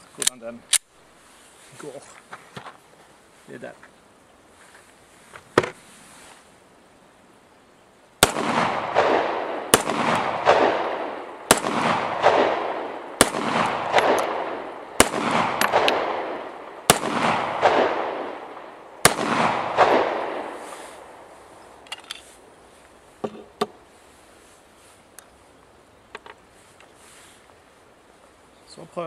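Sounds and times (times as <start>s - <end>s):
metallic clicks of gun handling: 0.2s - 0.9s, 21.8s - 22.3s
pistol shots with echo: 8.2s - 20.6s.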